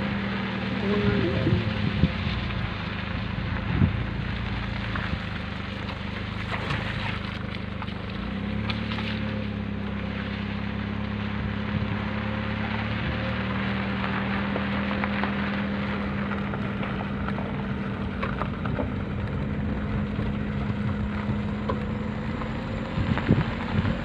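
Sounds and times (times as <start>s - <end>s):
vehicle engine running: 0.0s - 24.0s
wind rushing over microphone: 0.8s - 2.7s, 3.6s - 4.4s, 17.5s - 24.0s.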